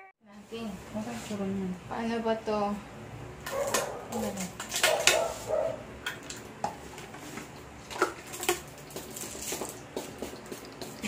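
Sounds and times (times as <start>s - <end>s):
dog barking: 3.5s - 5.9s
plastic crinkling: 6.3s - 10.8s.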